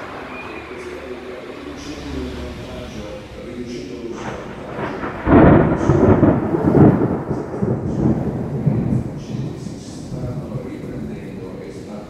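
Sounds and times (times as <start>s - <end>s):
heavy rain: 0.0s - 12.0s
thunderclap rumbling: 0.0s - 12.0s.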